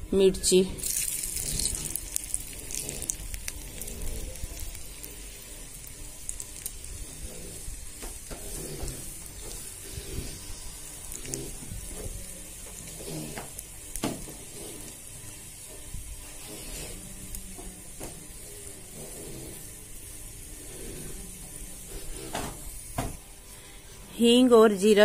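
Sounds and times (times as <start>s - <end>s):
hot oil sizzling with pops: 0.8s - 9.8s, 10.4s - 18.4s.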